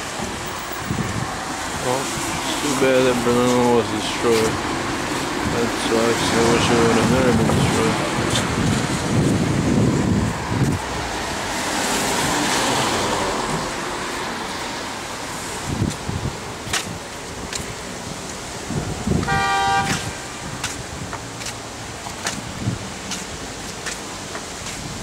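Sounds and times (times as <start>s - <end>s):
street traffic: 0.0s - 25.0s
vehicle horn toot: 19.2s - 20.2s.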